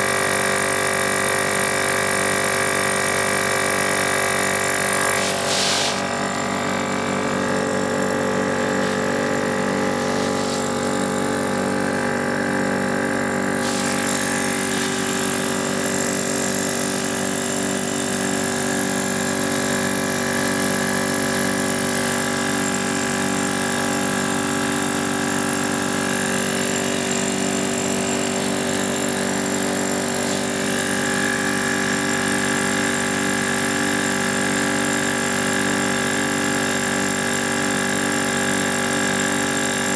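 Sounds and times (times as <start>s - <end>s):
portable tire inflator running: 0.0s - 39.9s.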